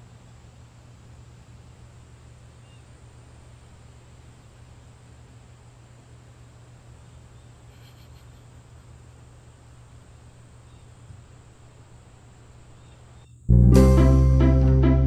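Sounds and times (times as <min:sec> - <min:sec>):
steady low hum: 0:00.0 - 0:15.0
music with plucked strings: 0:13.5 - 0:15.0.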